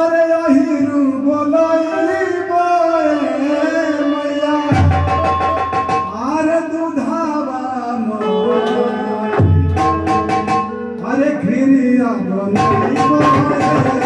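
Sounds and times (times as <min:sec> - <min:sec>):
person singing long wavering lines: 0:01.6 - 0:06.9
long held instrument notes: 0:08.0 - 0:11.0.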